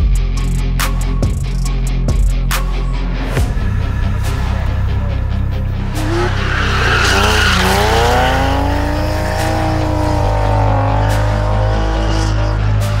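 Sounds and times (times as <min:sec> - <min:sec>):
music bass line: 0:00.0 - 0:13.0
car engine revving hard: 0:05.8 - 0:13.0.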